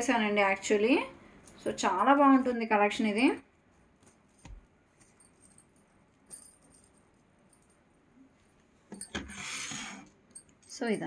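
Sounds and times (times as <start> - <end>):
metal jewellery jingling: 4.0 - 9.4, 10.3 - 11.0.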